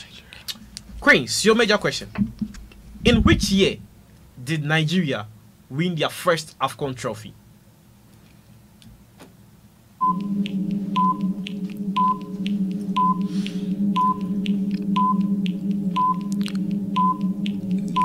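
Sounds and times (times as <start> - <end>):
steady low drone: 10.0 - 18.0.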